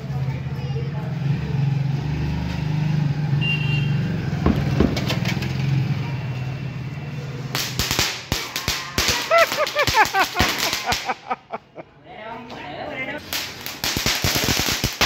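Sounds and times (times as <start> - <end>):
firework fountain hissing: 7.3 - 11.5, 13.2 - 15.0.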